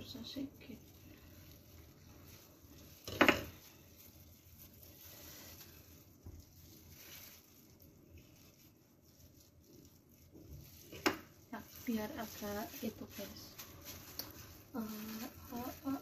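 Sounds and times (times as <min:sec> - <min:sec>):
knife slicing sushi rolls: 0:01.8 - 0:12.9.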